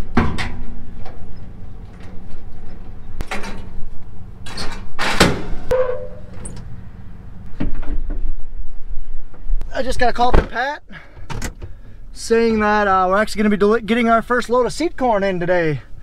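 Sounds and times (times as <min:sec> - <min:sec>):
low steady hum: 0:00.0 - 0:10.2
metal trailer hitch clanking: 0:04.4 - 0:06.7.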